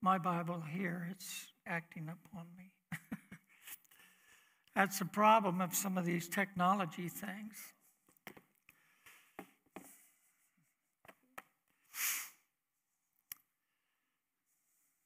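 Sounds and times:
breath through the nose: 11.8s - 12.5s.

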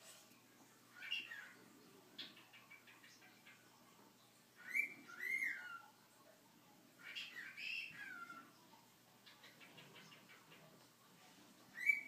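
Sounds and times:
cockatiel whistling: 11.8s - 12.0s.

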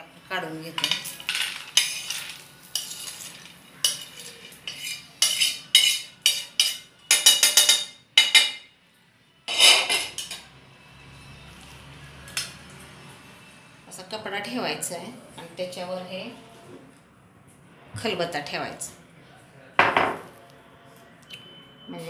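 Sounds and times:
metal spatula scraping a griddle: 1.2s - 7.7s, 9.5s - 10.4s.

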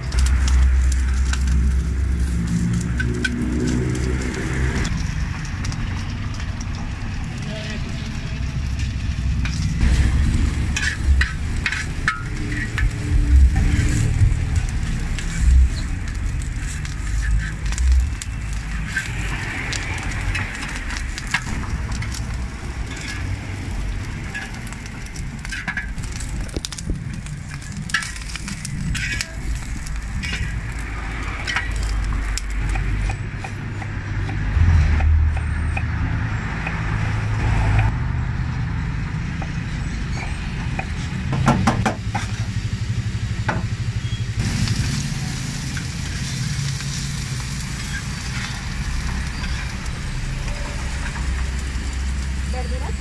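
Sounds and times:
low steady rumble: 0.0s - 18.8s
meat sizzling on a griddle: 0.0s - 34.2s, 43.8s - 53.0s
metal spatula scraping and tapping: 10.7s - 21.5s, 25.4s - 26.8s, 27.6s - 30.6s, 31.4s - 34.4s.

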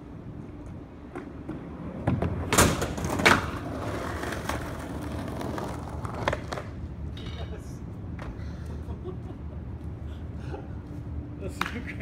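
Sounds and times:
skateboard wheels rolling on pavement: 0.0s - 7.2s
skateboard landing clack: 2.0s - 6.8s.

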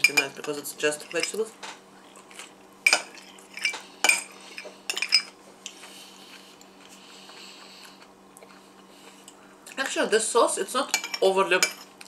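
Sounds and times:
metal spoon clinking on glass bowl: 0.0s - 1.4s, 10.9s - 11.9s.

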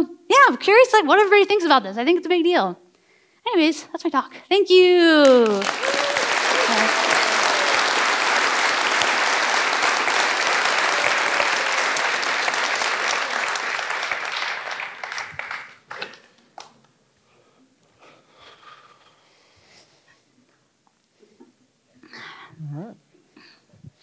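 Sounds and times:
audience applauding: 5.2s - 16.8s.

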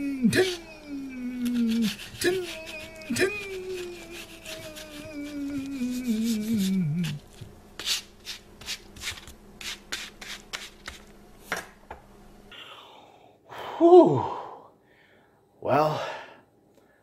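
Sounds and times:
man moaning: 0.0s - 7.2s, 12.6s - 14.7s
knife cutting and scraping plate: 1.4s - 11.0s.

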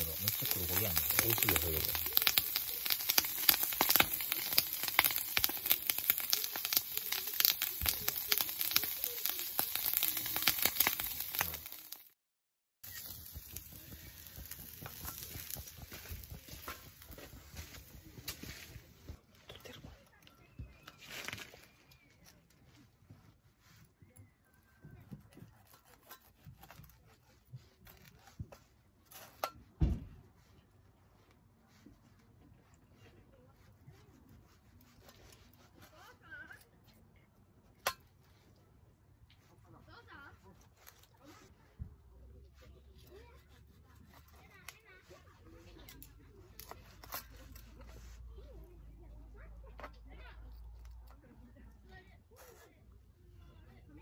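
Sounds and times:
fat sizzling and crackling on grill: 0.0s - 12.2s, 12.8s - 19.1s, 45.6s - 48.5s.

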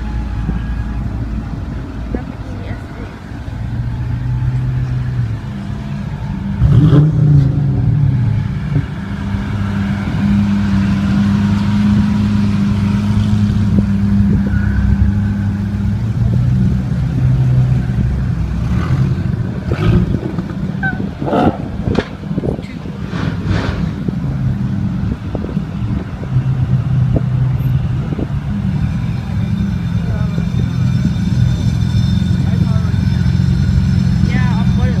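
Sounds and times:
sports car engines running low: 0.0s - 35.0s
engine revving: 6.2s - 25.3s.

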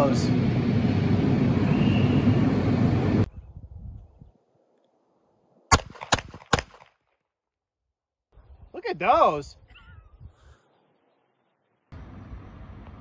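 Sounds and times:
handgun shots: 5.7s - 7.0s.

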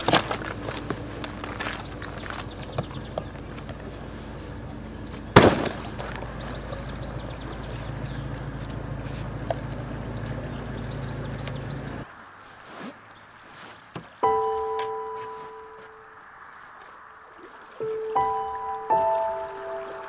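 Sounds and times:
steady low hum: 0.0s - 12.0s
birdsong: 0.0s - 20.0s
kayak slapping water: 0.0s - 20.0s.

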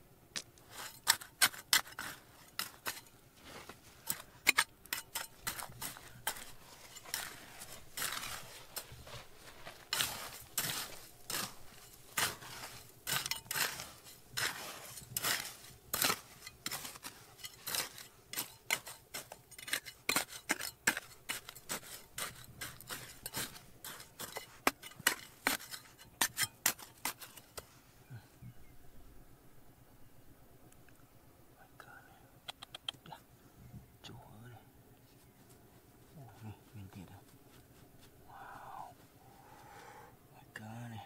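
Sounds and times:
digging tool scraping stone: 0.4s - 27.7s.

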